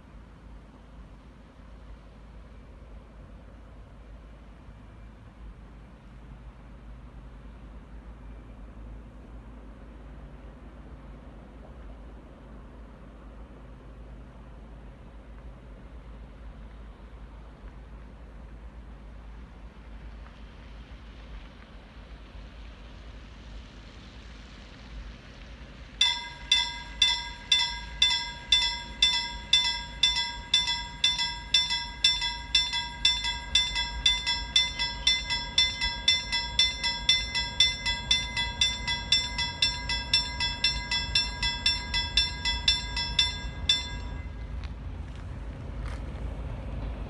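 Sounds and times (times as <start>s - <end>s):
low train rumble: 0.0s - 47.0s
level crossing warning bell: 26.0s - 44.8s.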